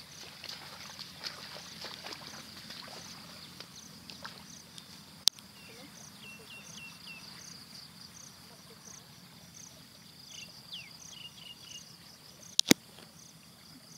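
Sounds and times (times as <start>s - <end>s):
feet splashing through shallow water: 0.0s - 5.2s
high insect trill: 0.0s - 13.9s
sharp click: 12.6s - 12.8s.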